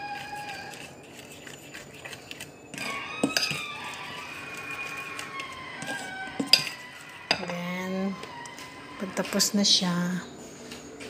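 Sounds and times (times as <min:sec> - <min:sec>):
spoon stirring batter: 0:00.0 - 0:10.2
spoon clinking against bowl: 0:01.2 - 0:03.7, 0:06.4 - 0:07.6.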